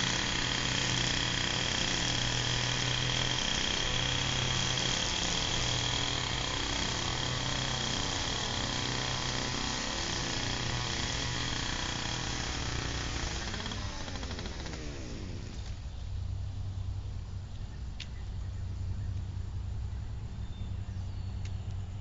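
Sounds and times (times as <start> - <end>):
string trimmer running at high revs: 0.0 - 15.9.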